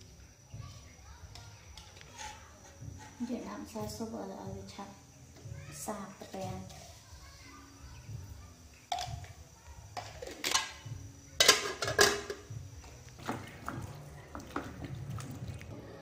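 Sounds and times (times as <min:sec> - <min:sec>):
metal pot and lid clanking: 0:08.9 - 0:09.3, 0:10.0 - 0:12.5
lid clattering onto pot: 0:10.0 - 0:10.8, 0:11.4 - 0:12.4.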